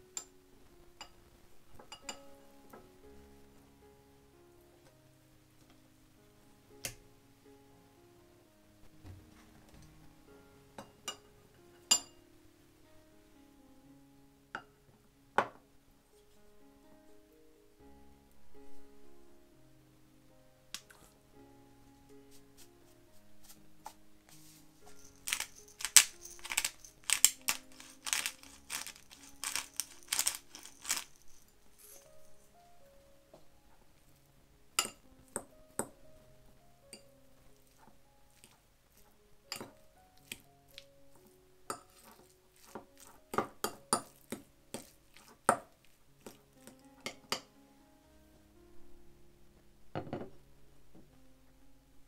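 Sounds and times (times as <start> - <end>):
soft background music: 0.0 - 52.0
pepper mill grinding: 24.8 - 32.4.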